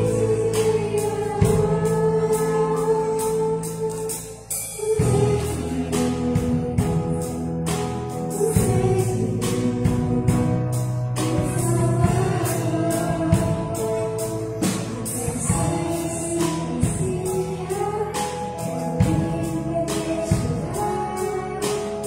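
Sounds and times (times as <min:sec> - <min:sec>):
children's choir singing: 0:00.0 - 0:07.4
acoustic guitar: 0:00.0 - 0:22.0
bass: 0:00.0 - 0:22.0
drum kit beat: 0:00.0 - 0:22.0
piano: 0:00.0 - 0:22.0.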